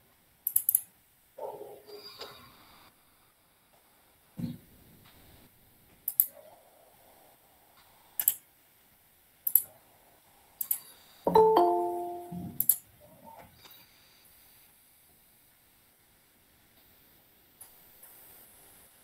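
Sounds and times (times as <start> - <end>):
sharp clicks: 0.4 - 0.9, 6.0 - 6.3, 8.2 - 8.4, 9.5 - 9.7, 10.6 - 10.9
short chime-like tone: 11.3 - 12.4.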